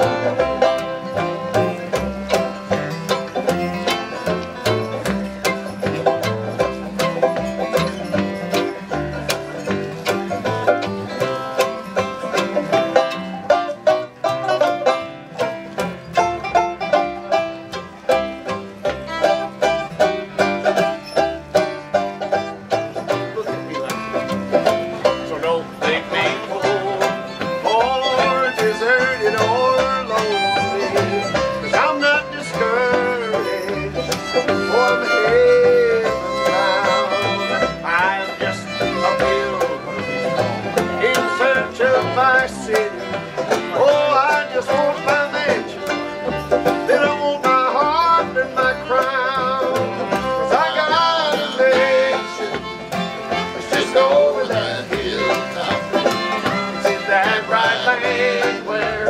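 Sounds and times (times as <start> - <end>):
fiddle melody: 0.0 - 59.0
strummed guitar: 0.0 - 59.0
upright bass: 0.0 - 59.0.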